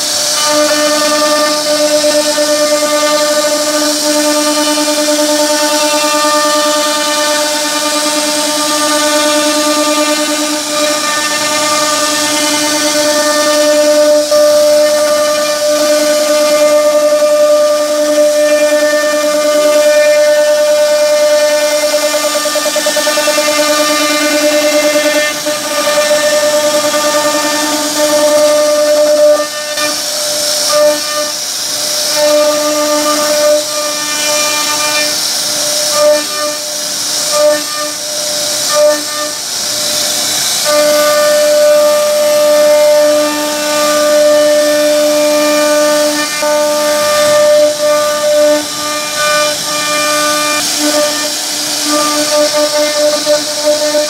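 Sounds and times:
bit cutting wood hiss: 0:00.0 - 0:54.0
router spindle whining: 0:00.0 - 0:54.0.

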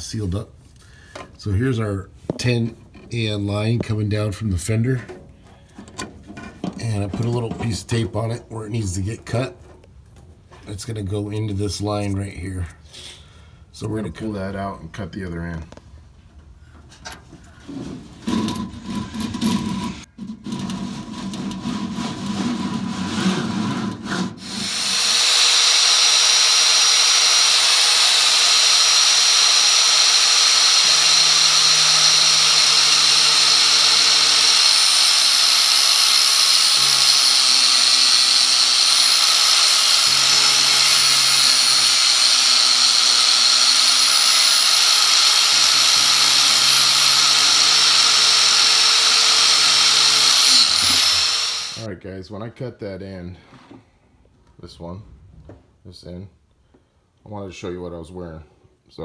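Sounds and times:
angle grinder whining: 0:24.4 - 0:51.9.

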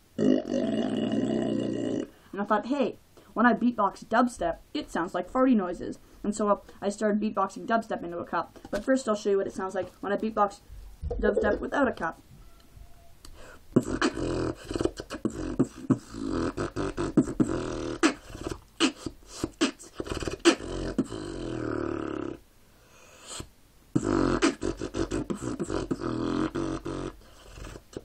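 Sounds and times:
beatboxing: 0:13.2 - 0:22.4, 0:23.2 - 0:28.0.

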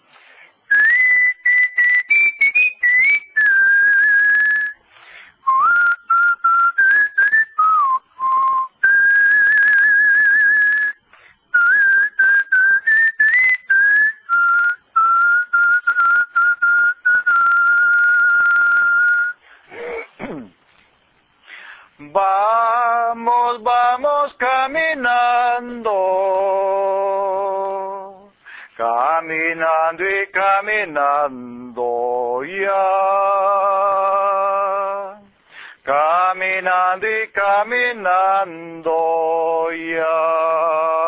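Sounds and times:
person whistling a melody: 0:00.6 - 0:20.0
man singing without words: 0:22.0 - 0:41.0.

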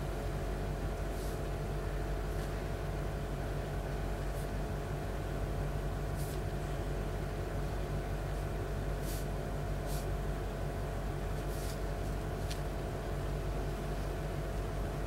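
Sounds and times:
low machine hum: 0:00.0 - 0:15.0
brush swishing on paper: 0:01.1 - 0:01.5, 0:02.3 - 0:02.6, 0:04.2 - 0:04.7, 0:06.1 - 0:06.5, 0:08.3 - 0:10.2, 0:11.3 - 0:12.7.

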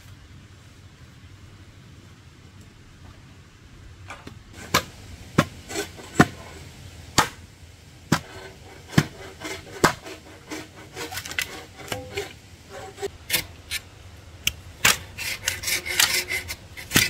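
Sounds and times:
hard blows from hand tool: 0:08.1 - 0:13.1.

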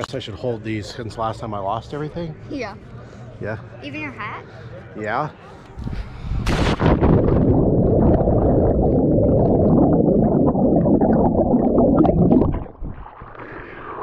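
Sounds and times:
underwater bubbles rushing: 0:06.8 - 0:14.0.

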